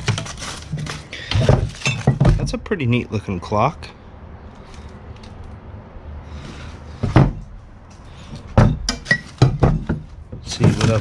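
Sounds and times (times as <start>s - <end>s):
knocks and clatters in wooden trunk: 0.0s - 2.6s, 7.0s - 7.5s, 8.4s - 11.0s.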